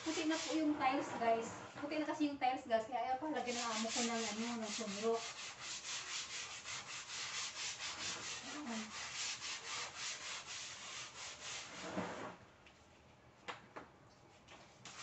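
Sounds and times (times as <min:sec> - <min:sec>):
brush scrubbing wet tiled floor: 0:00.0 - 0:01.0, 0:03.4 - 0:12.0.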